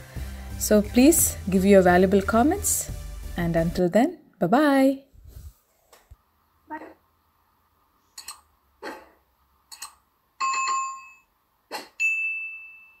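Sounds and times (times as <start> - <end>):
bright bell ding: 10.4 - 11.3, 12.0 - 13.0.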